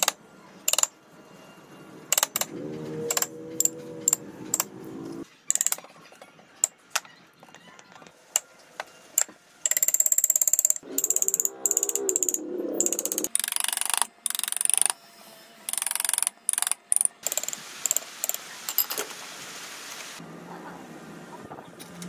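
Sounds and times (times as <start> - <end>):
tool mechanism clicking rapidly: 0.0 - 0.9, 2.1 - 2.5, 5.5 - 5.8, 9.7 - 15.0, 15.7 - 18.9.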